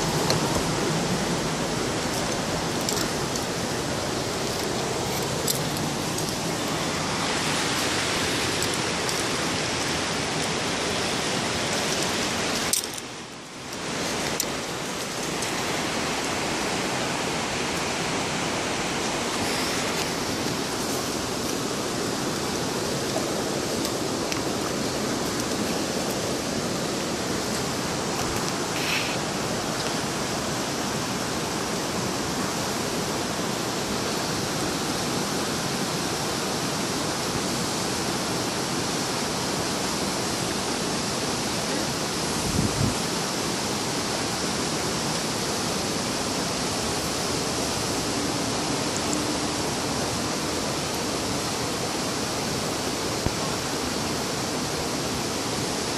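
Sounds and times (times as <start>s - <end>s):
steady rushing noise: 0.0s - 35.1s.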